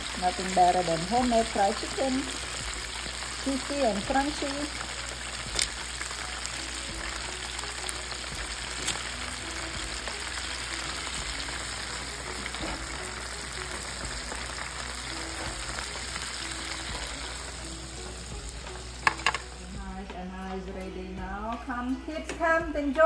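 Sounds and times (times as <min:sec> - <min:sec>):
chicken deep-frying in oil: 0:00.0 - 0:19.7.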